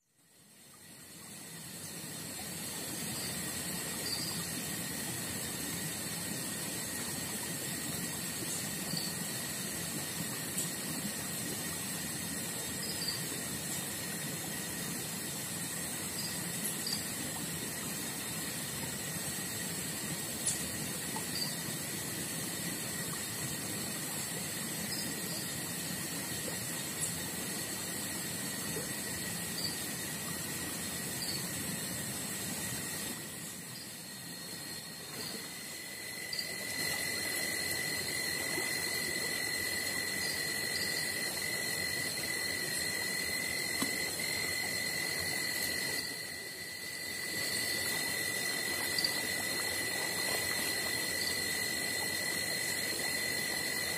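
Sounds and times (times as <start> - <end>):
insects droning: 0.0 - 53.9
faint chirps: 3.0 - 4.5, 16.0 - 17.2, 21.2 - 21.7, 24.8 - 25.6, 29.4 - 29.9, 31.1 - 31.5, 33.6 - 38.5, 48.8 - 49.4.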